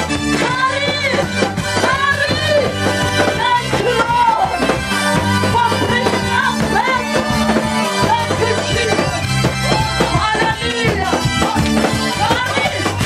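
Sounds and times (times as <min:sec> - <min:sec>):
drum kit: 0:00.0 - 0:13.0
voices singing: 0:00.4 - 0:13.0.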